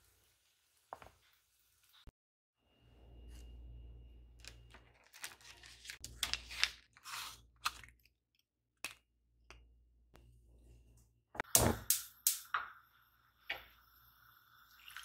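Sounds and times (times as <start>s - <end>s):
paper wrapper crinkling: 4.4s - 8.1s.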